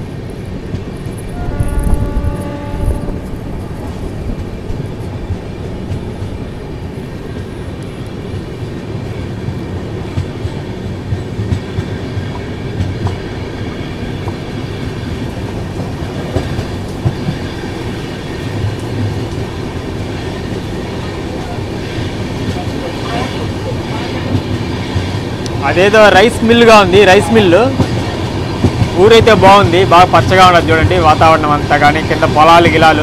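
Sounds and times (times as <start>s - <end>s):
train wheels rumbling on rails: 0.0s - 33.0s
clacks over rail joints: 7.3s - 26.7s, 27.5s - 33.0s.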